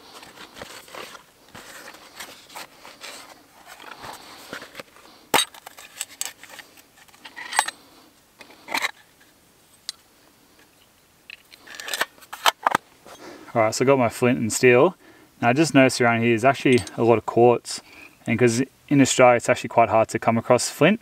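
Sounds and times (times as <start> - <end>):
leather rustling: 0.0 - 7.6.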